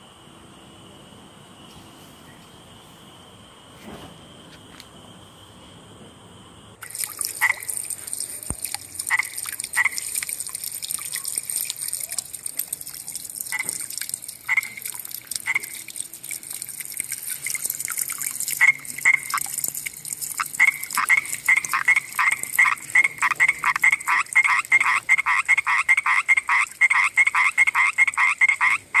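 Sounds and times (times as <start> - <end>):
insects chirring: 0.0 - 29.0
tree frog croaking: 6.9 - 12.4, 13.4 - 16.0, 17.3 - 29.0.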